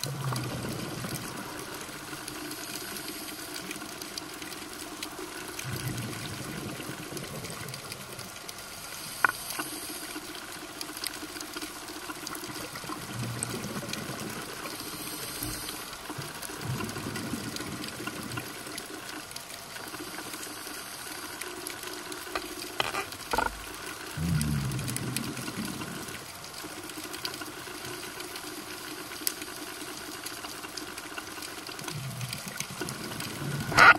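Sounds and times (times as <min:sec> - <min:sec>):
underwater watery hiss: 0:00.5 - 0:03.9, 0:08.6 - 0:10.6, 0:14.6 - 0:16.2, 0:19.8 - 0:21.8
low bubbling rumbles: 0:22.8 - 0:26.1.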